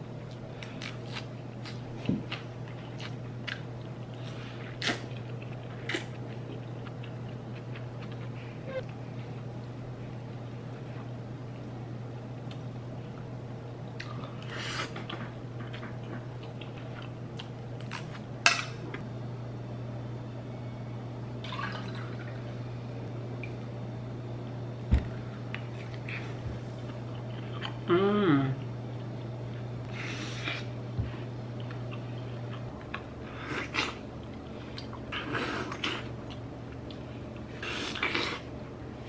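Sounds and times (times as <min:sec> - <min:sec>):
steady low hum: 0:00.0 - 0:39.0
person humming while chewing: 0:07.0 - 0:09.0, 0:25.9 - 0:29.3.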